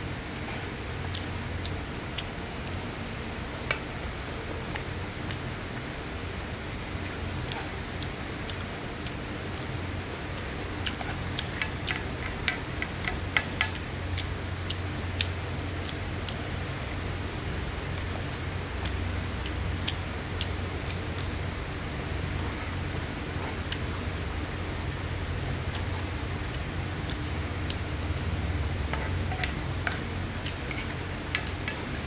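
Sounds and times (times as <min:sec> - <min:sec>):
spoon scraping frying pan: 0:28.8 - 0:32.0.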